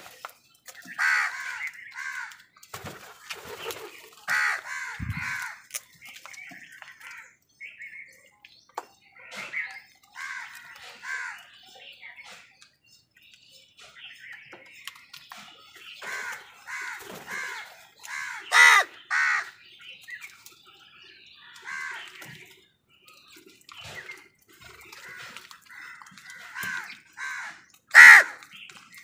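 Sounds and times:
crows cawing: 0.9s - 2.4s, 4.3s - 5.6s, 10.1s - 11.4s, 16.0s - 19.6s, 21.6s - 22.1s, 25.0s - 28.4s.

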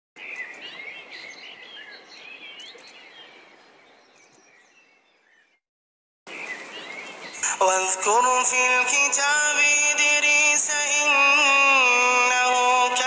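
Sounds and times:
birds chirping and whistling: 0.2s - 5.6s, 6.3s - 7.7s.

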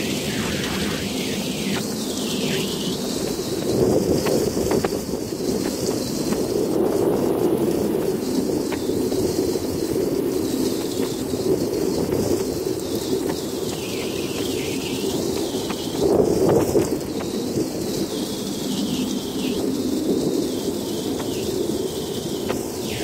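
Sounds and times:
heavy rain pouring: 0.0s - 3.0s.

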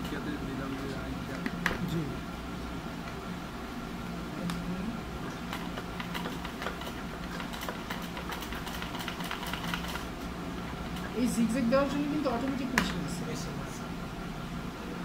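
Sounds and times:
sewing machine motor hum: 5.3s - 12.4s.

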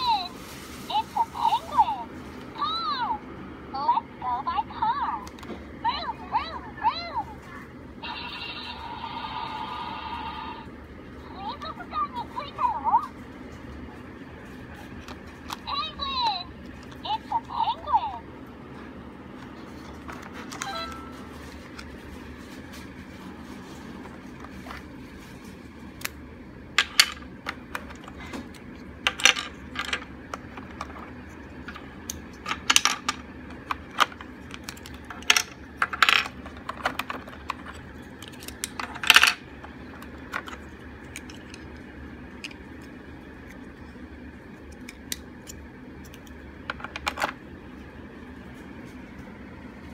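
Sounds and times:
plastic puzzle pieces clacking: 26.8s - 43.6s.

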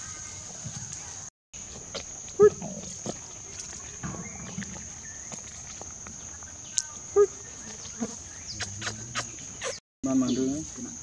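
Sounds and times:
macaque call: 1.7s - 3.7s, 6.2s - 10.4s.

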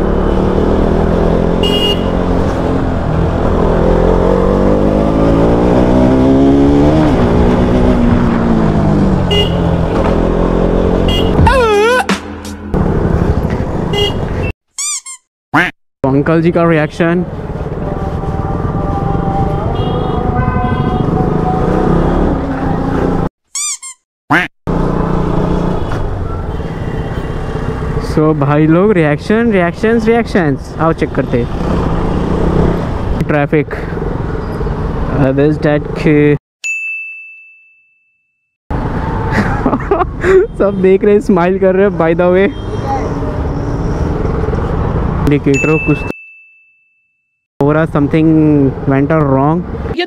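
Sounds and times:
motorcycle engine accelerating: 0.0s - 11.4s, 17.4s - 23.3s, 24.7s - 25.9s
street traffic noise: 0.0s - 36.4s, 38.7s - 46.3s, 47.6s - 50.0s
squeaky cartoon chirps: 14.7s - 15.7s, 23.5s - 24.5s.

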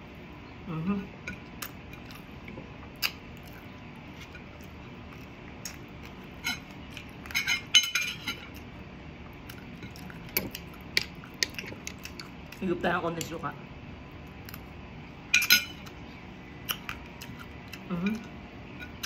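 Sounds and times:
cutlery clinking against plate: 7.3s - 8.4s.

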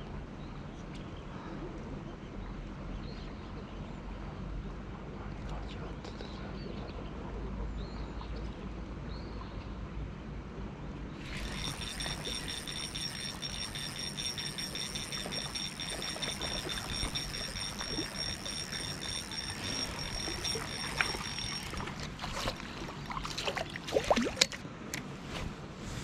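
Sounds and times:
fishing reel whining: 11.2s - 23.4s
sharp clicks: 11.3s - 22.6s
small splashes: 21.6s - 24.6s.

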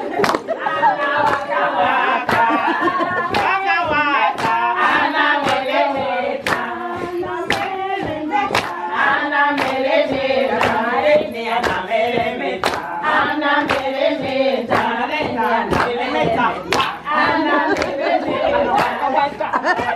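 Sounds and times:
hands clapping steady beat: 0.0s - 19.9s
women singing together: 0.0s - 19.9s.

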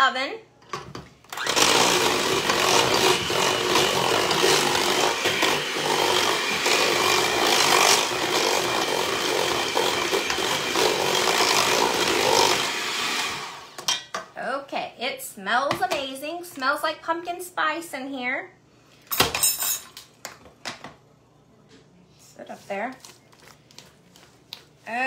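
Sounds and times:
electric hand mixer running: 1.3s - 13.8s.

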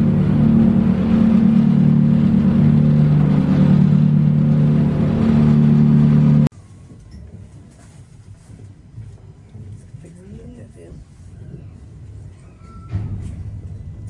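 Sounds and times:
boat engine drone: 0.0s - 6.5s.

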